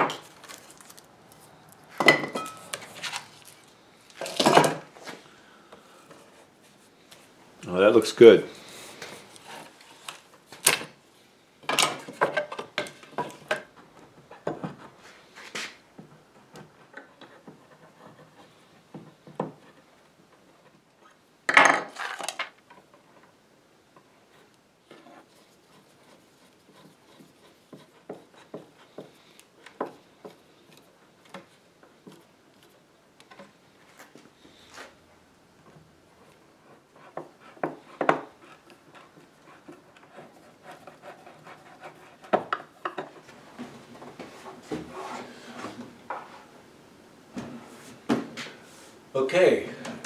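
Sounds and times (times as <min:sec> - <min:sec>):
hands rubbing wood: 0:02.6 - 0:04.2, 0:08.5 - 0:10.6, 0:24.0 - 0:35.0, 0:35.8 - 0:46.5.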